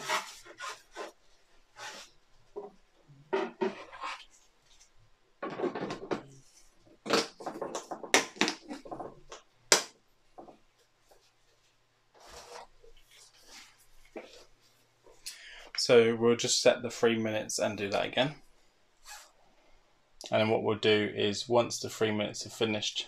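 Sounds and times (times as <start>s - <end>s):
hard plastic knocks and clacks: 5.4s - 6.4s, 7.0s - 10.6s.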